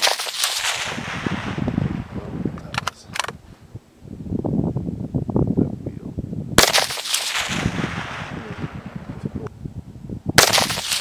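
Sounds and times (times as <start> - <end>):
rifle shots echoing: 0.0 - 2.2, 6.6 - 9.1, 10.4 - 11.0.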